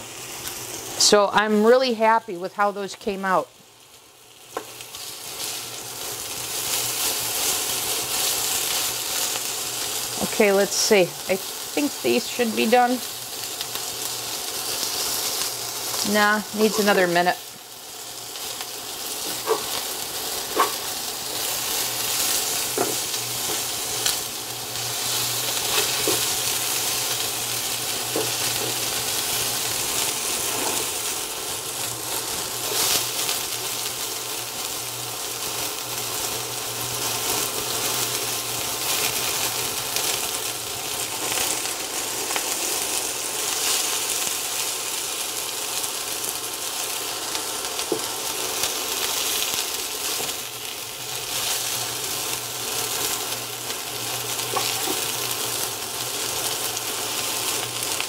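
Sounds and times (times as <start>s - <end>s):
meat sizzling in oil: 0.0s - 58.0s
spatula tapping and scraping pan: 20.5s - 20.8s, 22.7s - 23.7s.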